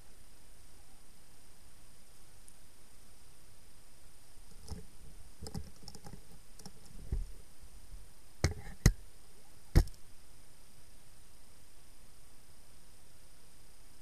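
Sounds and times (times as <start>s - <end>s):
faint clicks of fishing gear: 4.5s - 7.4s
sharp knocks: 9.8s - 10.0s.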